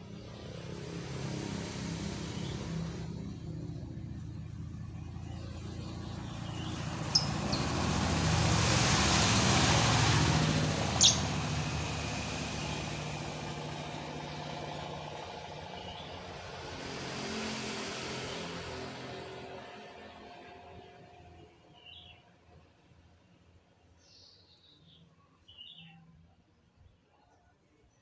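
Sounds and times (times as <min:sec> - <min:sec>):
motor vehicle passing: 0:00.0 - 0:21.4
lovebirds chirping shrilly: 0:06.3 - 0:07.9, 0:10.9 - 0:11.4.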